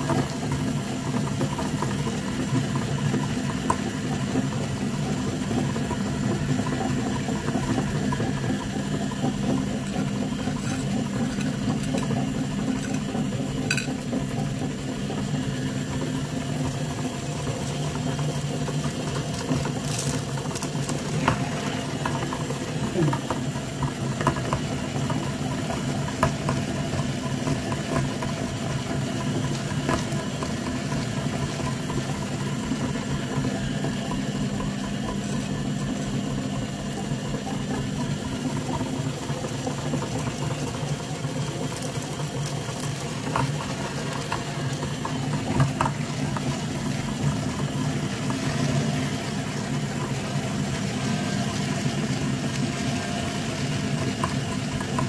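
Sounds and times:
meat grinder motor hum: 0.0s - 55.0s.

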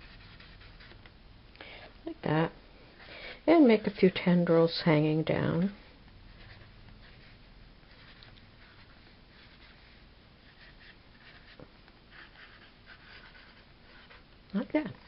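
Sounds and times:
marker scratching on paper: 0.0s - 1.0s, 6.3s - 14.2s
low room hum: 0.0s - 15.0s.

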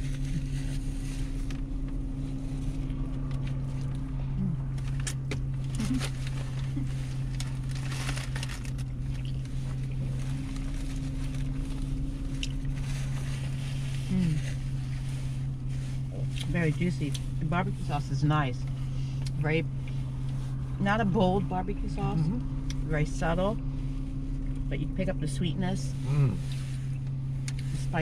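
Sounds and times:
vehicle cabin hum: 0.0s - 28.0s
paper wrappers crinkling: 4.9s - 13.6s.

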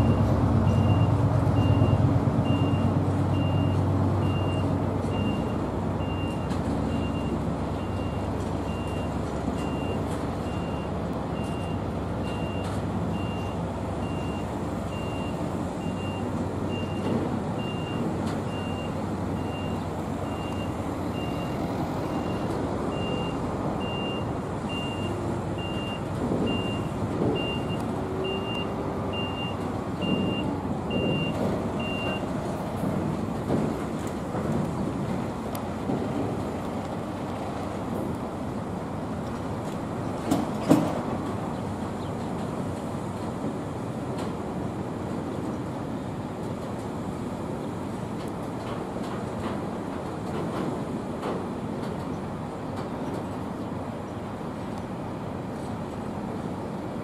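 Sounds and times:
diesel locomotive engine rumble: 0.0s - 57.0s.

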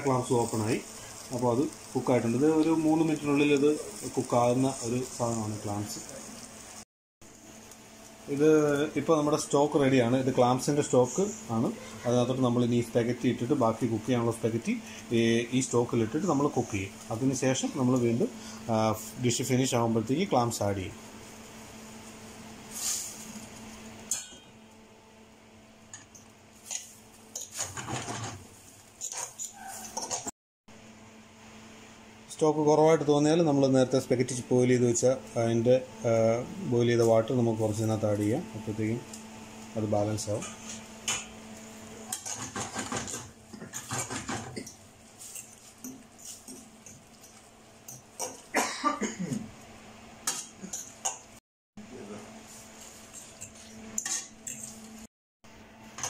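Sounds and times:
fork scraping a pan: 29.0s - 30.3s, 42.1s - 48.4s, 53.0s - 54.8s.

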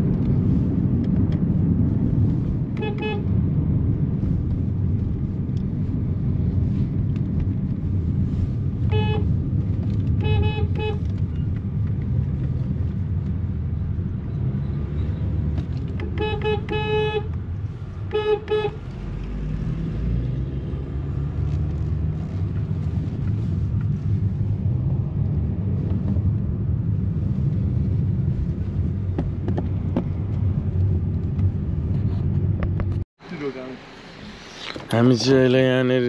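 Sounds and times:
car engine rumble: 0.0s - 36.0s
road noise inside car: 0.0s - 36.0s
car horn toots: 2.8s - 3.3s, 8.9s - 9.3s, 10.1s - 11.1s, 16.0s - 17.4s, 18.1s - 18.8s.

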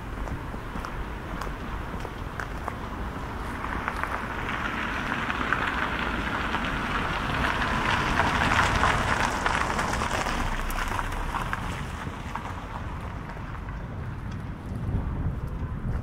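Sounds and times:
vehicle passing by: 2.8s - 15.4s.

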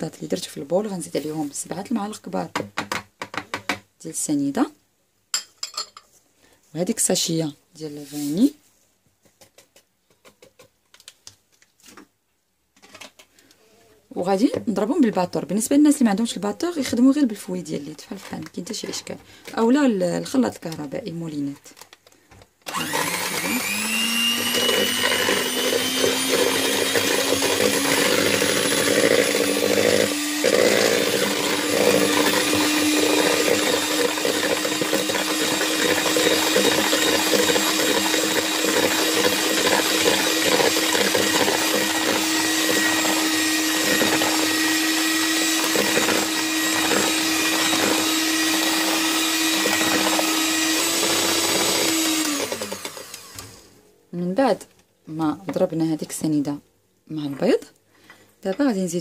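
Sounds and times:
electric mixer whining: 22.7s - 53.8s.

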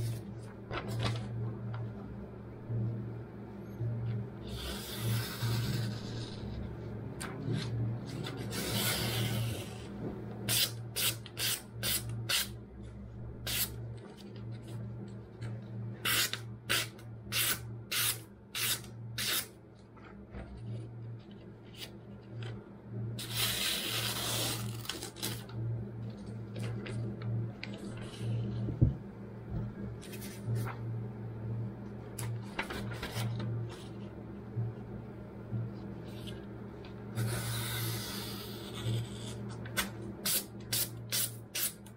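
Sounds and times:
paper rustling: 0.7s - 1.3s, 32.2s - 34.0s.

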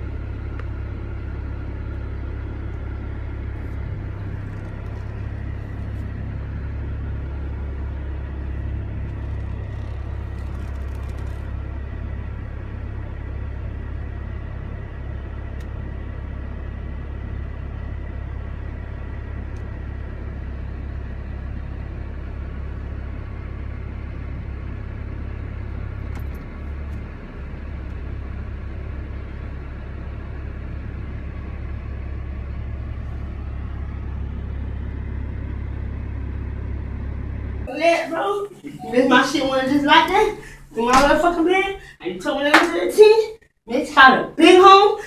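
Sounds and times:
car engine idling: 0.0s - 45.0s.

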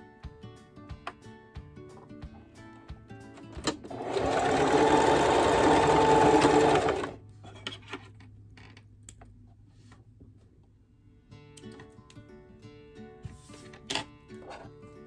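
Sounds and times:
sewing machine stitching: 3.6s - 7.2s.

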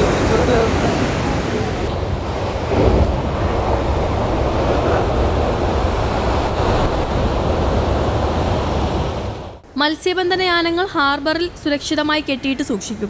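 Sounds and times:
sea surf breaking over rocks: 0.0s - 9.6s.

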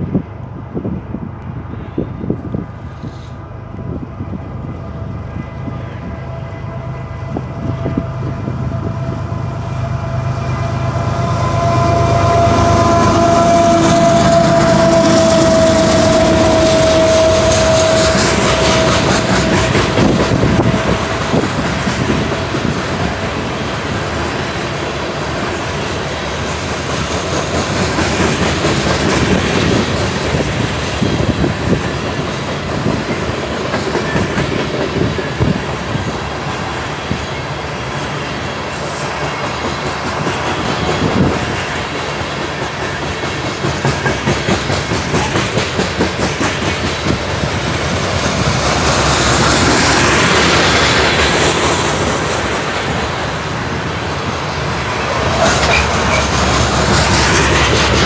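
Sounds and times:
locomotive engines rumbling: 0.0s - 58.0s
locomotive horn: 5.2s - 21.4s
train wheels clattering: 11.8s - 58.0s.

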